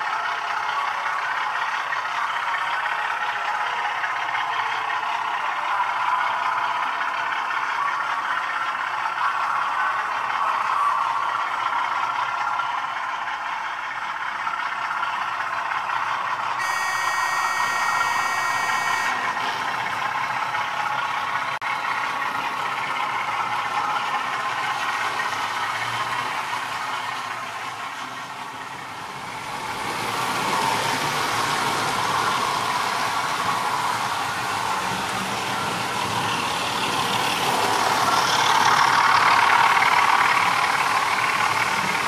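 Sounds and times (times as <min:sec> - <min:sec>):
model train whirring on track: 0:00.0 - 0:42.0
high whine: 0:16.6 - 0:19.4.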